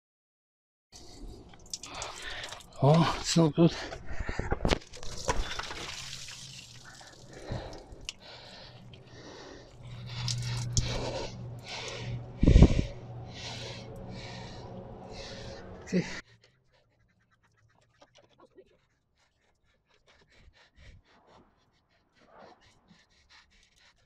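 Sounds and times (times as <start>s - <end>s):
person breathing hard: 1.0s - 4.8s, 6.8s - 17.0s, 19.2s - 24.0s
low steady hum: 5.4s - 16.3s.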